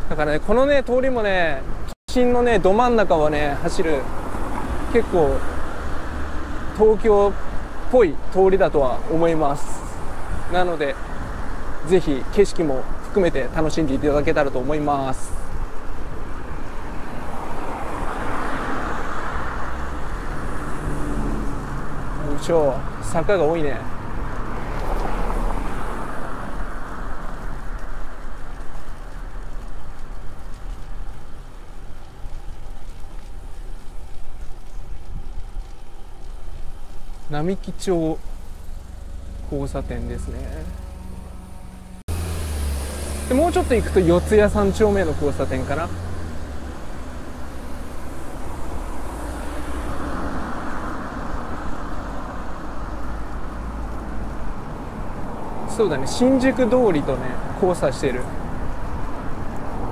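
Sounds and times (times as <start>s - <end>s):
wind rumble on microphone: 0.0s - 42.1s, 43.5s - 59.9s
city traffic: 0.0s - 59.9s
low rumble: 34.6s - 52.4s.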